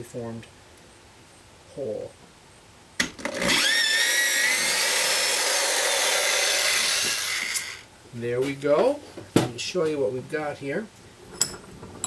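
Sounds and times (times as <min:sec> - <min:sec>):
electric drill motor whine: 0:03.2 - 0:07.9.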